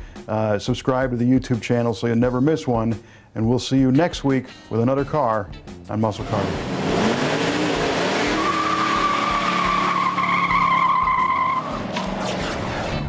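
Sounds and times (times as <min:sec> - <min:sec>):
car engine revving: 0:06.2 - 0:13.0
tires squealing: 0:06.2 - 0:13.0.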